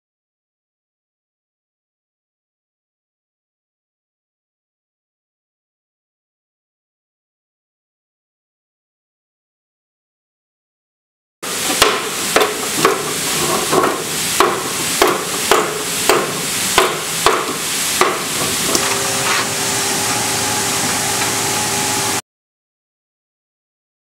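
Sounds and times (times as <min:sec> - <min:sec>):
steady machine hum: 0:11.4 - 0:22.2.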